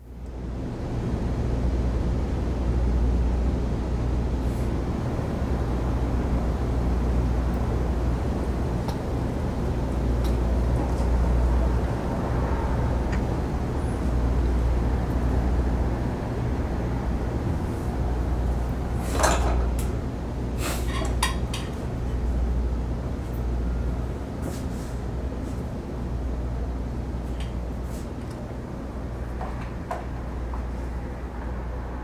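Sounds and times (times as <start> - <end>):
steady low rumble: 0.0 - 24.4.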